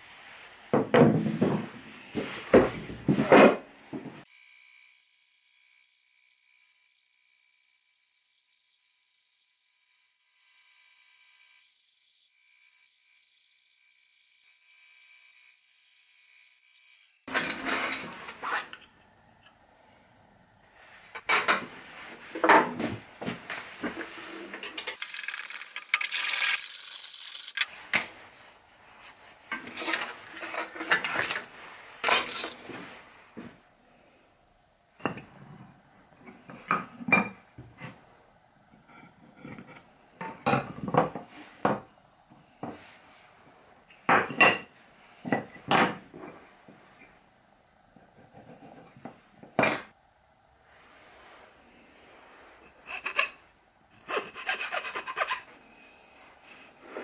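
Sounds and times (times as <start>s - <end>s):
wood knocking and clattering: 0.8s - 1.8s.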